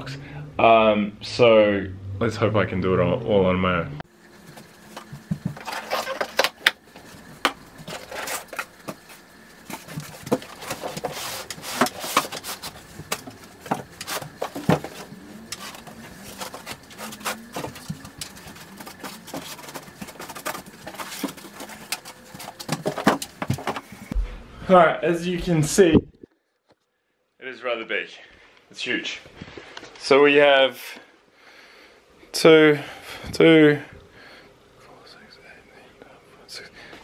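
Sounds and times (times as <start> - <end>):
foam packing rustling: 4.4 - 24.2
cardboard box being unpacked: 9.7 - 23.9.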